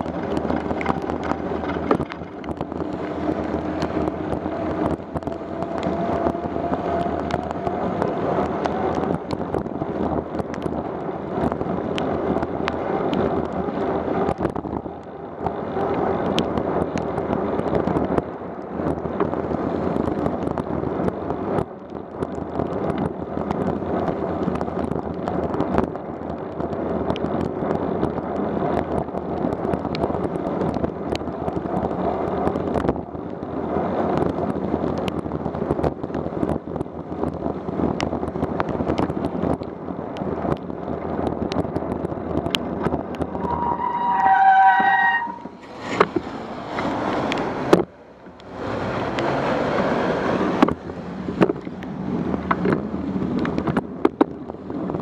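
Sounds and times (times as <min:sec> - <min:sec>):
raindrops ticking on camera: 0:00.0 - 0:43.5, 0:45.4 - 0:55.0
wind noise on microphone: 0:00.0 - 0:55.0
tyres hissing on wet road: 0:43.5 - 0:53.3.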